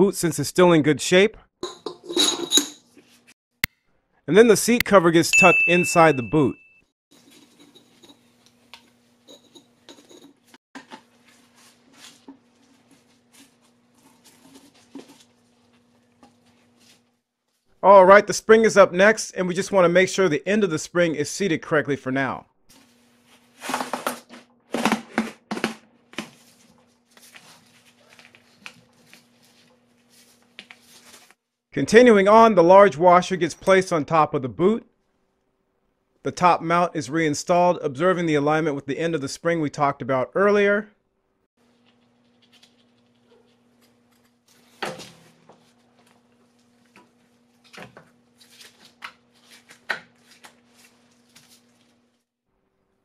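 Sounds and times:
metal parts scraping: 9.2 - 10.5.

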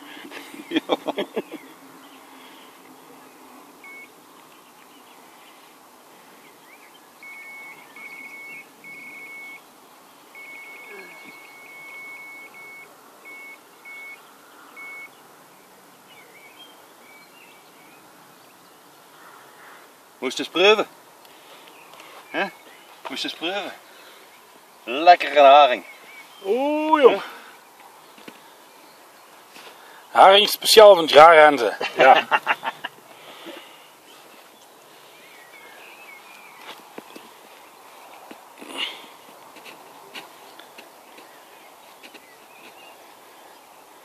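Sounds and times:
faint high electronic beeping: 3.8 - 4.2, 7.2 - 9.7, 10.3 - 15.2.

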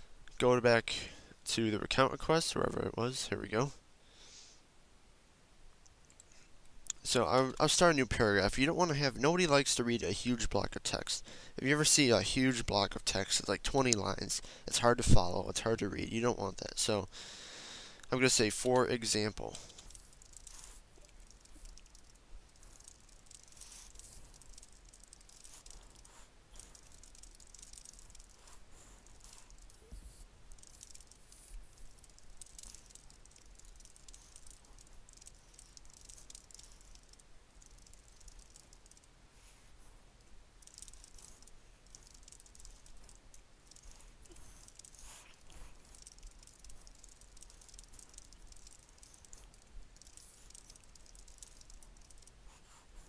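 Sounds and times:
faint computer keyboard typing: 18.0 - 39.1, 40.2 - 52.8.

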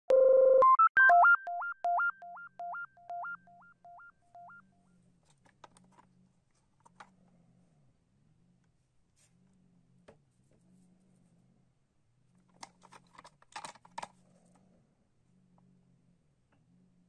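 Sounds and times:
synthesizer jingle: 0.1 - 4.6.

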